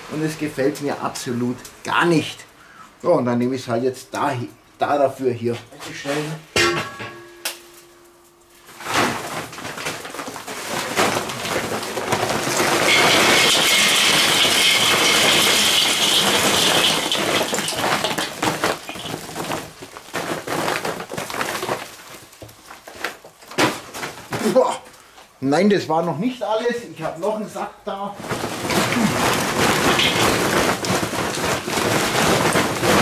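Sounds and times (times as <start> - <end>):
charcoal pouring into metal grill: 8.5 - 23.4, 28.2 - 33.0.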